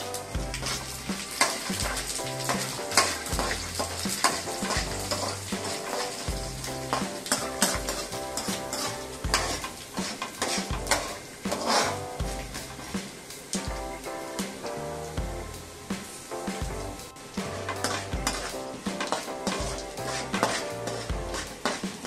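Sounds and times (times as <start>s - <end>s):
background music with bass line: 0.0s - 9.8s, 10.7s - 13.0s, 13.6s - 21.6s
seeds sizzling in hot oil: 0.0s - 22.0s
metal ladle scraping pan: 0.6s - 13.0s, 17.4s - 22.0s.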